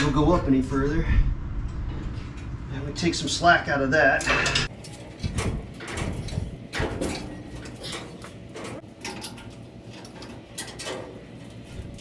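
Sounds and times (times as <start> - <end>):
metal tools clinking and scraping: 4.2 - 12.0.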